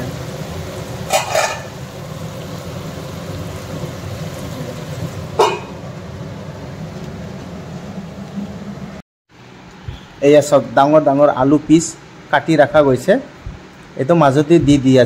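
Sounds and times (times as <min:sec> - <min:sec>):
curry sizzling in a pan: 0:00.0 - 0:08.2
low rumble of gas burner: 0:00.0 - 0:15.0
metal lid clinking on pan: 0:01.1 - 0:01.7, 0:05.4 - 0:05.8.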